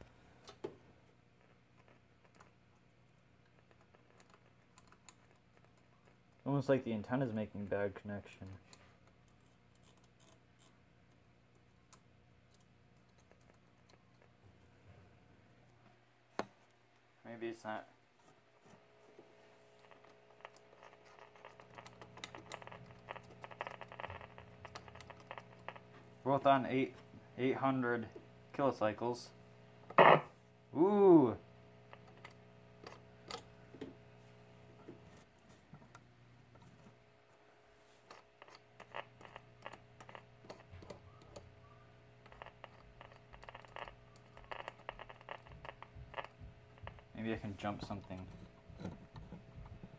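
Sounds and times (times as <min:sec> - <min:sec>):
faint steady hum: 0:00.0 - 0:49.9
radio static crackling: 0:19.4 - 0:28.1, 0:29.9 - 0:30.3, 0:31.7 - 0:33.0, 0:38.1 - 0:41.0, 0:42.2 - 0:48.2
radio low hum: 0:19.8 - 0:32.6.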